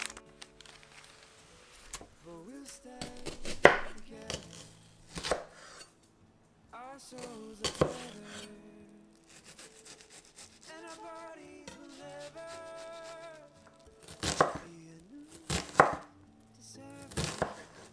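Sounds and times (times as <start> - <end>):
knife cutting on wooden board: 3.0 - 5.9, 7.2 - 8.5, 9.3 - 10.7, 14.1 - 14.6, 17.2 - 17.9.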